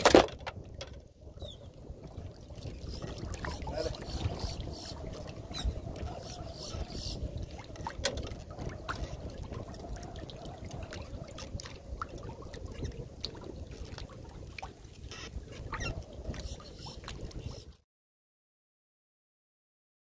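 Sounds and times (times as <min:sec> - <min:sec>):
water lapping at dock: 0:00.0 - 0:17.8
small splashes and clicks: 0:07.4 - 0:17.4.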